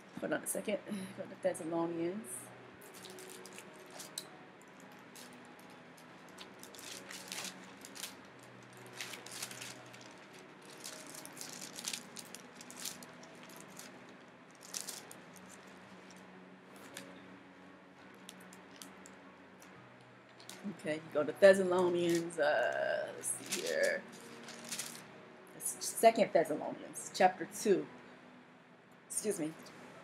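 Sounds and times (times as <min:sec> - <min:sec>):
faint background music: 0:00.0 - 0:30.0
pages rustling: 0:06.2 - 0:14.0, 0:23.4 - 0:25.0.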